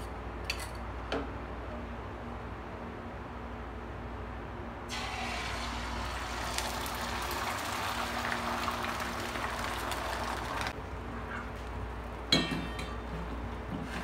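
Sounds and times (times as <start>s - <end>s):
eggs sizzling in hot oil: 4.9s - 10.8s.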